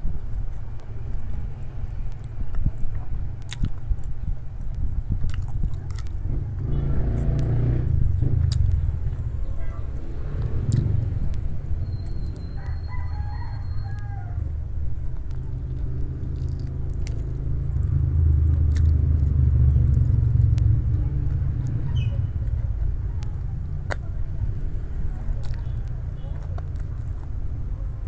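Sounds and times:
steady low rumble: 0.0s - 28.0s
rooster crowing: 12.2s - 14.5s.

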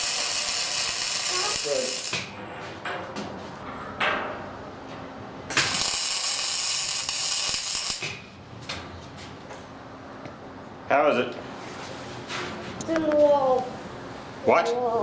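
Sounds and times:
welding arc crackling and hissing: 0.0s - 2.3s, 5.5s - 8.2s.

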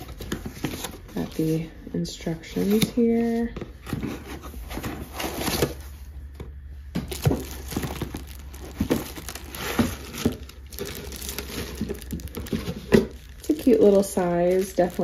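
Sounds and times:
foam and cardboard scuffing: 7.0s - 15.0s
plastic bag crinkling: 7.0s - 15.0s.

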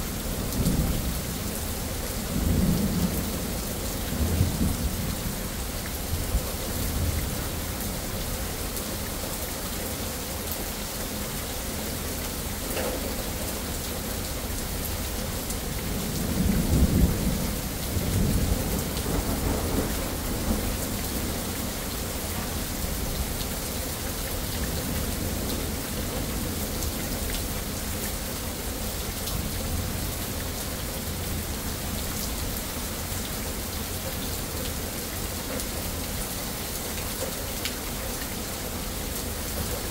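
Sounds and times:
rain pouring on pavement and foliage: 0.0s - 39.9s.

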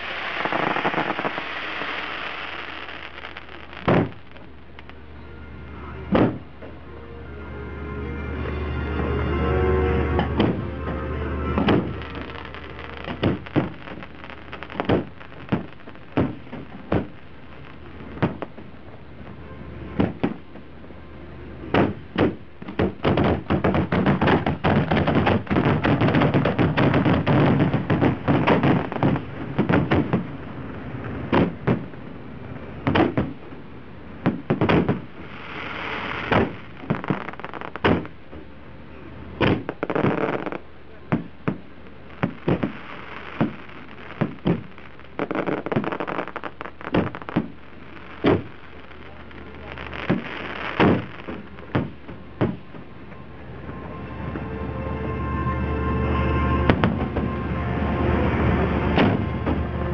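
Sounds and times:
fireworks bursting with sharp bangs: 0.0s - 5.0s, 6.1s - 6.8s, 10.2s - 38.6s, 39.2s - 53.8s, 56.6s - 57.4s, 58.2s - 59.9s
hissing crackle of fireworks: 0.0s - 6.8s, 10.0s - 55.1s, 56.2s - 59.9s.

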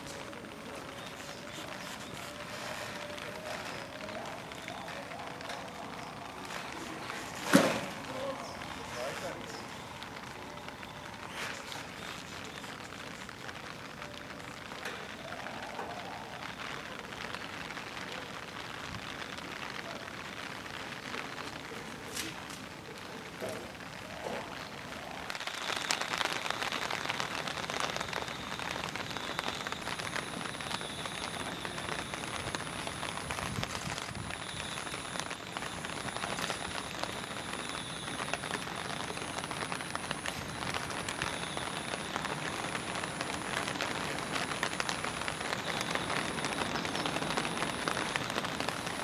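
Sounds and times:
steady rain falling: 0.0s - 49.0s.

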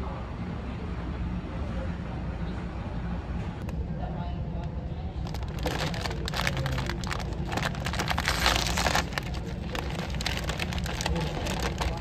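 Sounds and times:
plastic packaging crinkling: 5.2s - 12.0s.

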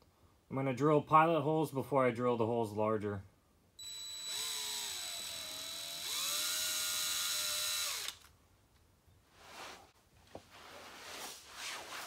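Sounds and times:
cordless drill whining: 3.8s - 8.3s.

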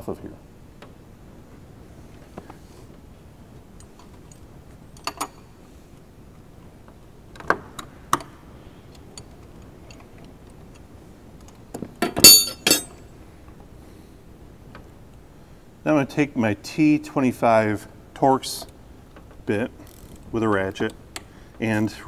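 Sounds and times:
metal tools clinking: 12.0s - 13.0s.

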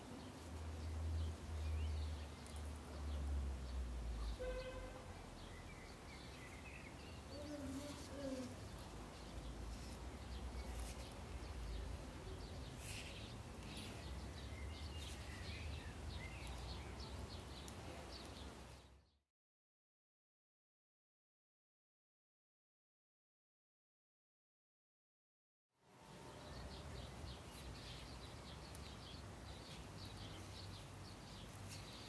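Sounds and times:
birds chirping: 0.0s - 19.2s, 26.1s - 32.0s.

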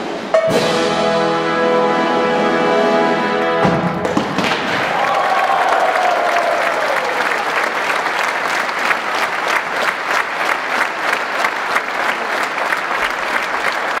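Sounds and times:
audience applauding rhythmically: 3.9s - 14.0s.

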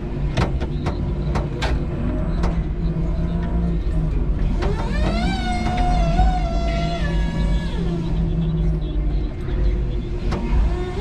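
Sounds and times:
electric forklift humming: 0.0s - 11.0s
forklift knocks and clatters: 0.2s - 2.8s.

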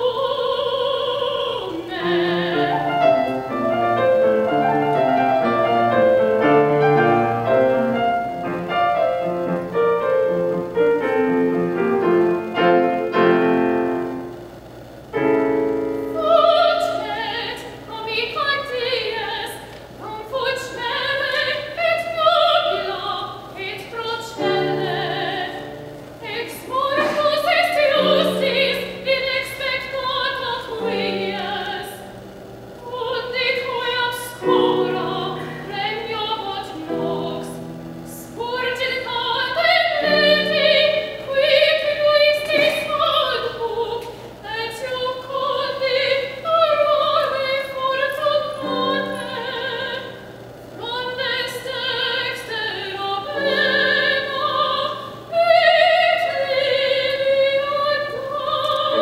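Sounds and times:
soprano singing with vibrato: 0.0s - 14.4s, 15.1s - 59.0s
grand piano playing: 1.2s - 19.5s, 23.9s - 44.0s.

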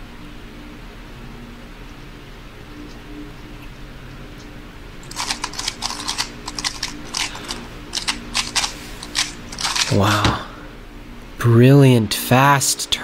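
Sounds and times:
low room hum: 0.0s - 13.0s
puzzle cube plastic clicks: 5.0s - 10.0s.

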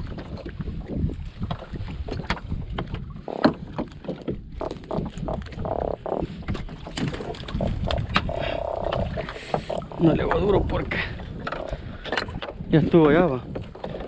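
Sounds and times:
water against boat hull: 0.0s - 14.0s
wind buffeting microphone: 0.0s - 14.0s
low hums: 4.2s - 12.0s.

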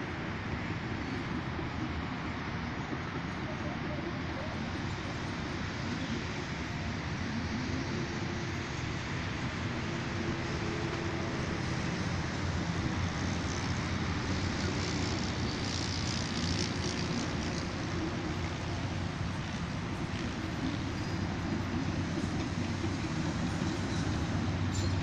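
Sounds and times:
traffic noise: 0.0s - 25.0s.

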